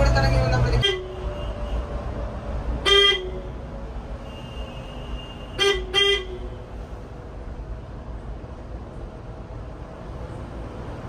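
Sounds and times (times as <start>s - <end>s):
engine and road rumble: 0.0s - 11.0s
vehicle horn toots: 0.8s - 1.9s, 2.8s - 3.5s, 4.2s - 6.6s.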